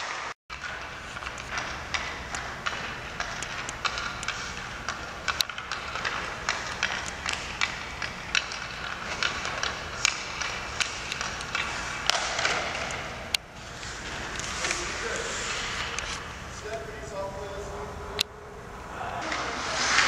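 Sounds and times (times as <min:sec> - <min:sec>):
skate blades scraping ice: 0:00.0 - 0:16.2, 0:19.2 - 0:20.0
hockey sticks and pucks clacking: 0:00.0 - 0:17.8, 0:19.2 - 0:20.0.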